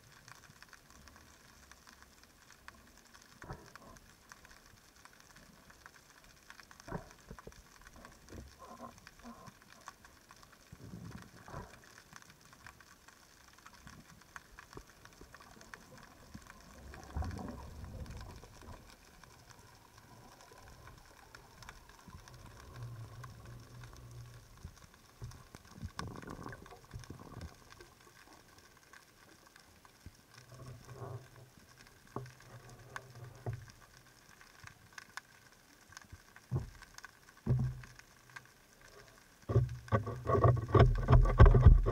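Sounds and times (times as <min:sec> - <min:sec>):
low steady hum: 0:00.0 - 0:34.2
low underwater swells: 0:00.0 - 0:34.4
underwater crackling and clicks: 0:00.0 - 0:41.9.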